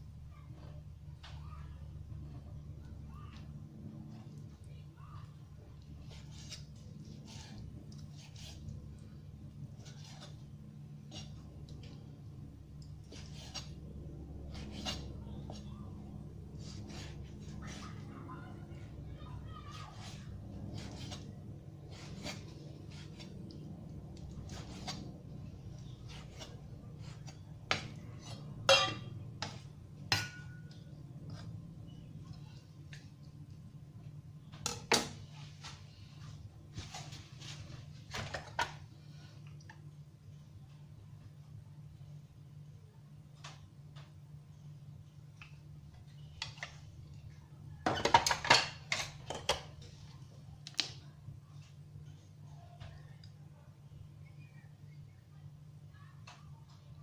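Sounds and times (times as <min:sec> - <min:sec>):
steady low hum: 0:00.0 - 0:57.0
clatter of containers and utensils: 0:47.8 - 0:49.9.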